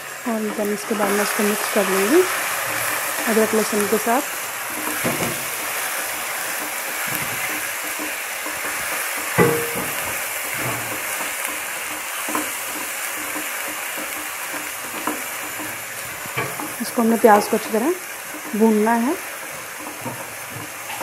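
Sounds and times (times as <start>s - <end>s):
paste sizzling in oil: 0.0s - 21.0s
spatula knocking against pan: 6.4s - 16.8s.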